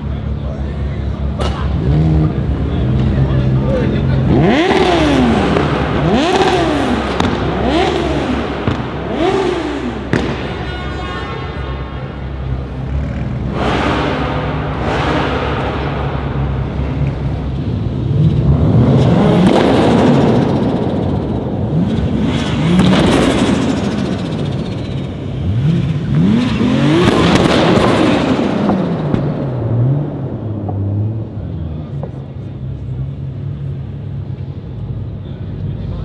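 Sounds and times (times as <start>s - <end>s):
car engine revving: 0.0s - 10.6s, 11.4s - 36.0s
sharp exhaust crack: 4.1s - 31.0s.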